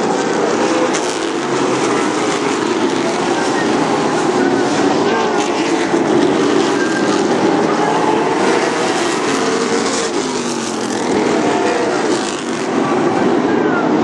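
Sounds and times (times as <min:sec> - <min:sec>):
race car engines: 0:00.0 - 0:14.0.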